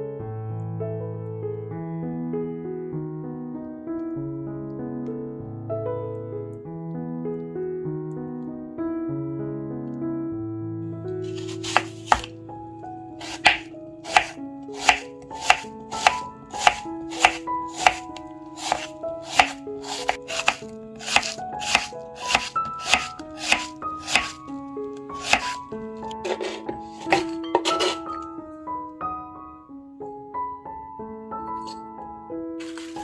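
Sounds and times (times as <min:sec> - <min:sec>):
soft piano music: 0:00.0 - 0:33.0
knife chopping on wooden board: 0:11.3 - 0:12.3, 0:13.2 - 0:24.4, 0:25.2 - 0:28.1, 0:32.6 - 0:33.0.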